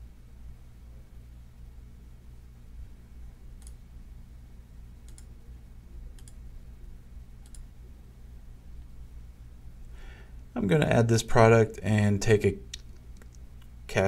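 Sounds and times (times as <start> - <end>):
faint low hum: 0.0 - 14.0
computer mouse clicking: 3.6 - 3.8, 5.0 - 5.3, 6.2 - 6.4, 7.4 - 7.7.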